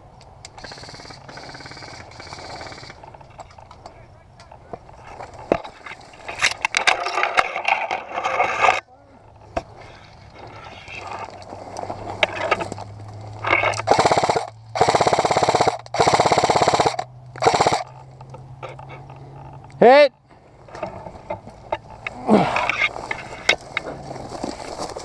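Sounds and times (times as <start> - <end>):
crackling noise: 0.0 - 25.0
airsoft rifle full-auto bursts: 0.6 - 3.1, 13.8 - 17.9.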